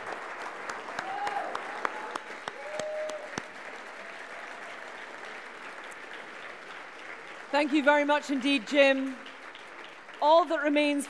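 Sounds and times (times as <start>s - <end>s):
audience applauding: 0.0s - 11.0s
calls from crowd: 0.9s - 5.3s.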